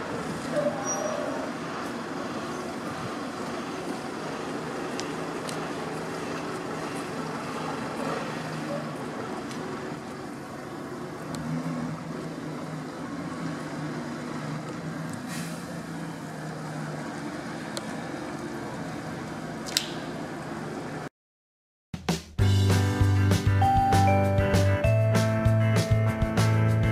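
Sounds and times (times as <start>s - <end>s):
traffic on a wet road: 0.0s - 21.1s.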